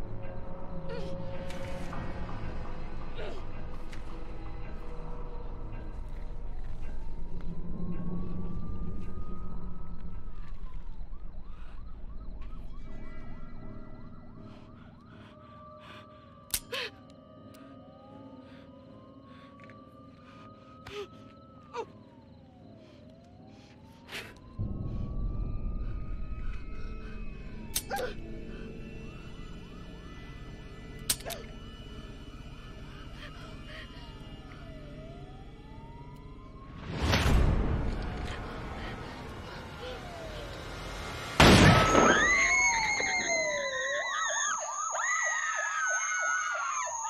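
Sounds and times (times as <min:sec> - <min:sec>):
emergency vehicle siren: 0:00.0 - 0:47.0.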